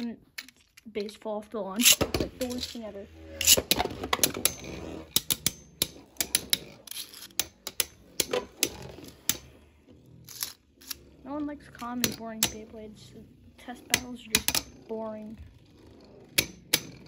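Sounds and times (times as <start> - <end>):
spinning tops clacking together: 3.4 - 9.5, 10.3 - 11.0.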